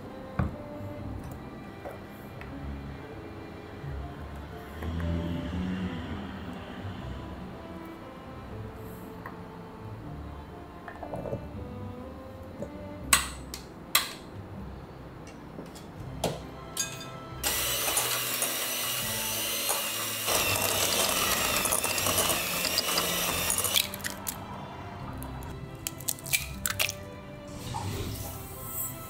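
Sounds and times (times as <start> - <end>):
electric hand mixer running: 17.4 - 24.3.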